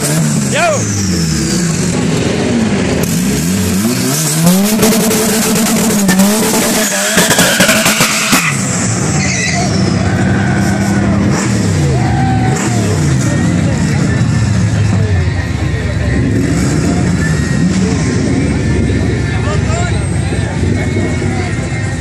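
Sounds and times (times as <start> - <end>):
truck engine revving: 0.0 - 22.0
tyres squealing: 6.8 - 11.2.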